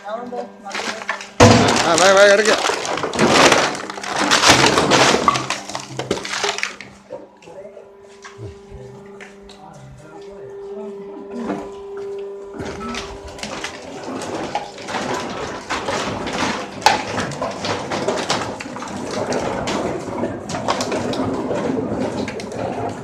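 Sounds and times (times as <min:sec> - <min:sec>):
steady hum: 0:00.0 - 0:23.0
plastic bottles crackling in a sack: 0:00.6 - 0:07.0, 0:12.6 - 0:23.0.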